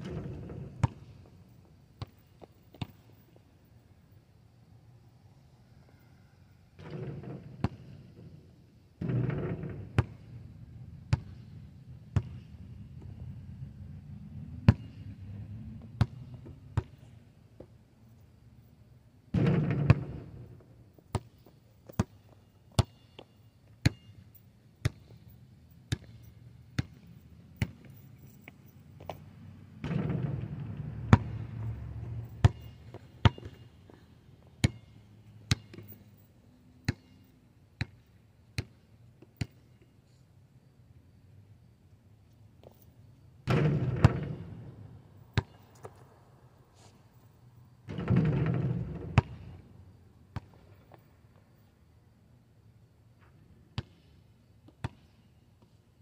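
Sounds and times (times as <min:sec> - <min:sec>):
basketball bouncing on asphalt: 0:00.0 - 0:03.5, 0:06.8 - 0:08.2, 0:09.0 - 0:13.5, 0:14.6 - 0:17.8, 0:19.3 - 0:25.3, 0:25.9 - 0:36.1, 0:36.8 - 0:37.2, 0:37.8 - 0:39.9, 0:43.4 - 0:46.1, 0:47.8 - 0:49.7, 0:50.3 - 0:51.5, 0:53.2 - 0:55.2
low rumbling noise: 0:29.2 - 0:33.0.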